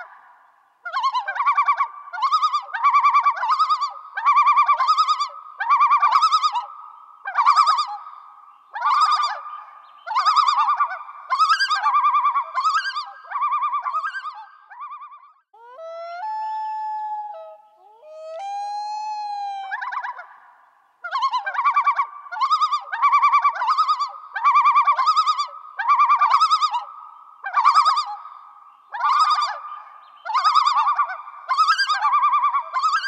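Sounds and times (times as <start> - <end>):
animal warbling call: 15.6 - 20.3.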